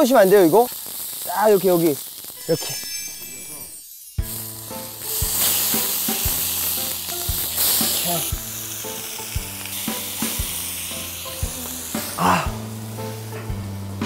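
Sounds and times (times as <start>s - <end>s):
pork belly sizzling on griddle: 0.0s - 14.0s
background music with beat: 4.2s - 14.0s.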